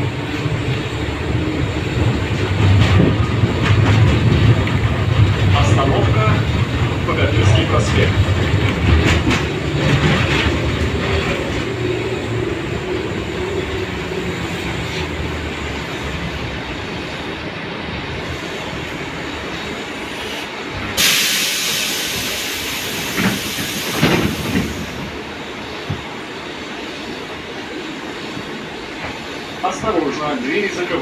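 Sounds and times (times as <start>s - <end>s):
tram wheels rumbling: 0.0s - 31.0s
loud air hiss: 20.0s - 25.2s.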